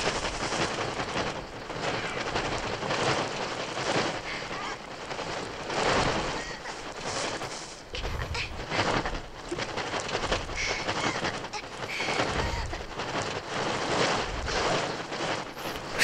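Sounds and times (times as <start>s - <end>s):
wings flapping: 0.0s - 16.0s
electronic bird screeching: 10.6s - 11.3s.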